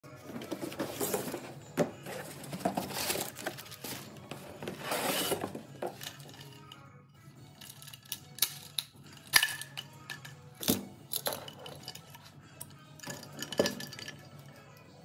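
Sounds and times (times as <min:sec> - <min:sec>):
cardboard rustling and scraping: 0:00.2 - 0:06.0.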